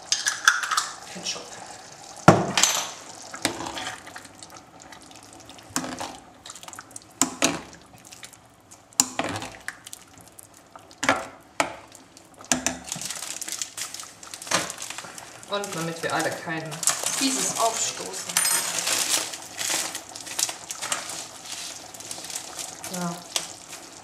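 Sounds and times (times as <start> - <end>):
wet squelches of thick sauce: 3.2 - 11.0.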